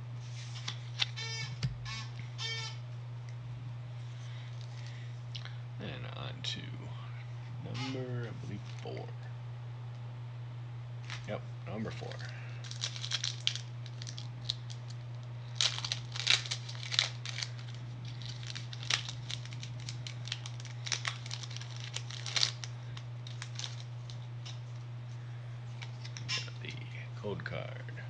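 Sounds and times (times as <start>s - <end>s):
steady low hum: 0.0s - 28.0s
foil wrapper tearing and crinkling: 12.0s - 24.8s, 25.8s - 26.4s.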